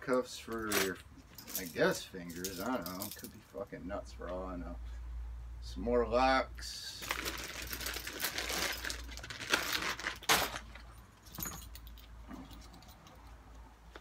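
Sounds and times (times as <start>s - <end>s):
keys and padlocks jangling: 0.5s - 3.4s, 10.9s - 13.3s
plastic bag handling noise: 7.0s - 11.0s.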